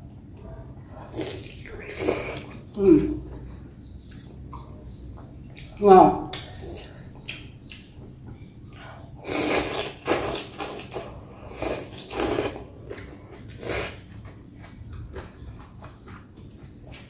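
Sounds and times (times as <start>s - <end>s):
person slurping noodles: 9.2s - 12.7s
chewing and mouth sounds: 9.4s - 17.0s.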